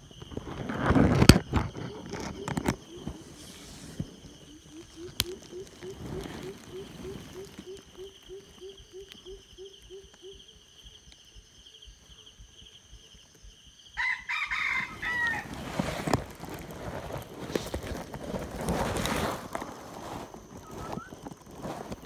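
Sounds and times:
rustling: 0:00.2 - 0:09.4, 0:14.5 - 0:22.0
rooster crowing: 0:14.0 - 0:15.6.

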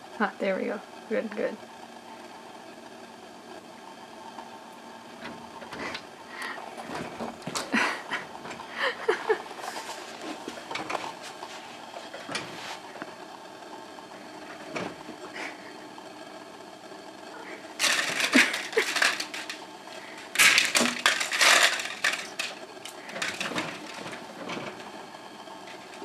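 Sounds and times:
scratches and rattles on screen door: 0:05.0 - 0:15.7, 0:17.4 - 0:26.0.

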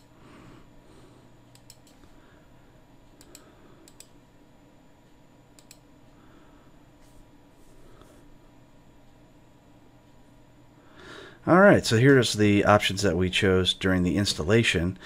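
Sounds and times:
low steady hum: 0:00.0 - 0:15.0
computer mouse clicks: 0:01.5 - 0:02.1, 0:03.2 - 0:04.2, 0:05.6 - 0:05.9.

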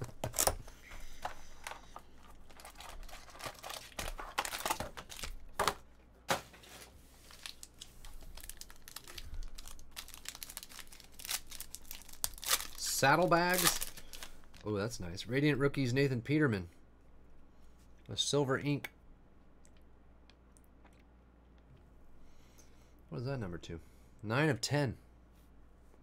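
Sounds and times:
foil wrappers crinkling: 0:00.0 - 0:05.8, 0:06.6 - 0:14.8
card pack torn open: 0:02.5 - 0:05.8, 0:07.3 - 0:14.3.

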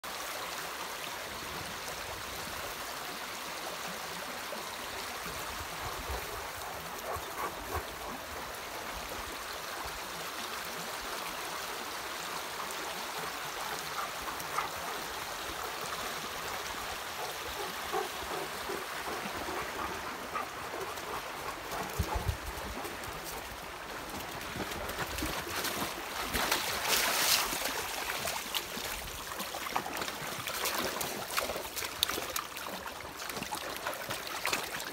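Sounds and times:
shallow stream rushing: 0:00.0 - 0:34.9
dogs splashing in water: 0:24.1 - 0:34.9.

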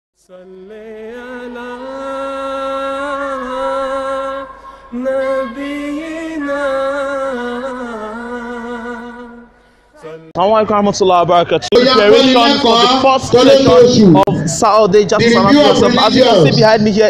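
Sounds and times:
a cappella chant-like singing: 0:00.2 - 0:10.4.

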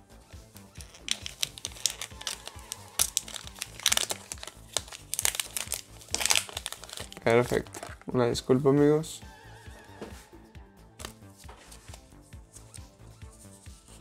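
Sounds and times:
foil wrapper crinkling: 0:00.7 - 0:08.1.

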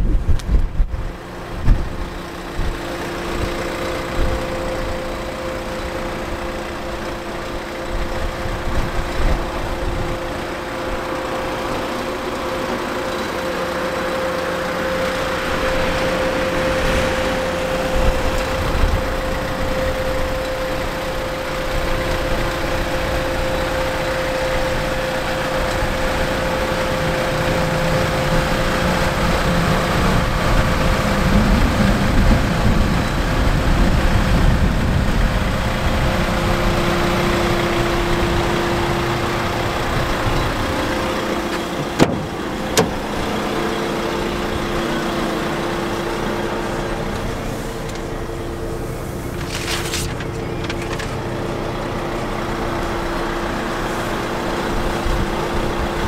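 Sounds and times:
diesel van engine idling: 0:00.0 - 0:56.0.

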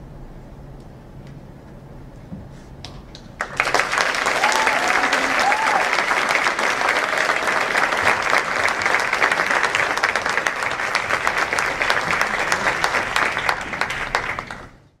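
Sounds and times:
audience applauding: 0:03.1 - 0:15.0.

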